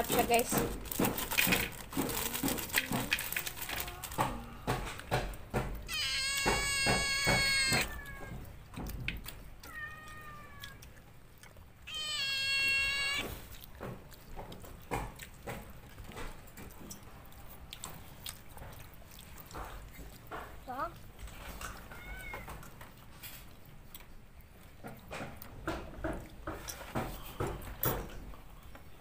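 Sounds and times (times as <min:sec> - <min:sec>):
eating clicks and knocks: 0:00.0 - 0:29.0
cat meowing: 0:05.9 - 0:08.6, 0:09.6 - 0:11.0, 0:11.8 - 0:13.4, 0:21.8 - 0:22.6.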